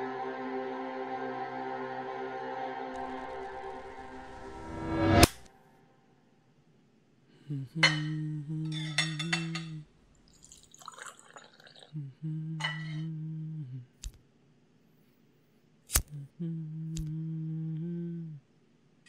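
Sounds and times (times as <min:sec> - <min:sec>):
person humming a tune: 0:07.3 - 0:09.8, 0:11.9 - 0:14.1, 0:16.0 - 0:18.5
steel pots and utensils clinking: 0:08.7 - 0:09.8.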